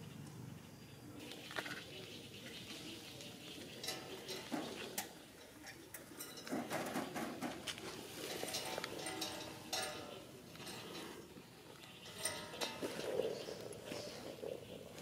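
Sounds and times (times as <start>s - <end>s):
taps and clinks on metal ladder: 3.6s - 11.2s, 11.8s - 13.4s.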